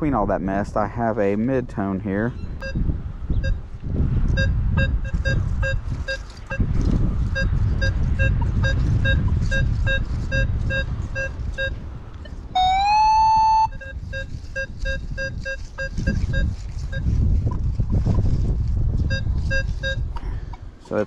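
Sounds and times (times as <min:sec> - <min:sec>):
metal detector beeps: 0:02.4 - 0:02.8, 0:04.3 - 0:06.7, 0:07.3 - 0:17.2, 0:19.1 - 0:20.1
low rumble: 0:02.6 - 0:20.5
metal detector continuous tone: 0:04.3 - 0:17.6, 0:19.0 - 0:20.1.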